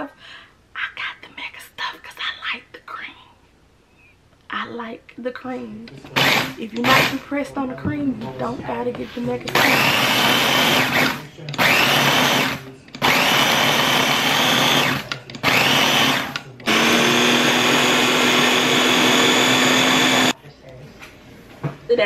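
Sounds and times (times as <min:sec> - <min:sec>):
food chopper grinding: 0:06.2 - 0:07.2, 0:09.6 - 0:20.4.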